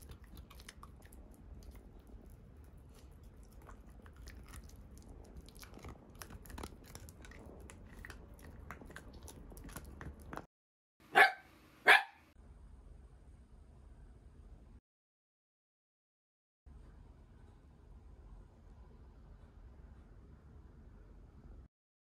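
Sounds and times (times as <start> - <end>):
dog gnawing antler: 0.0 - 10.5
dog barking: 11.1 - 12.2.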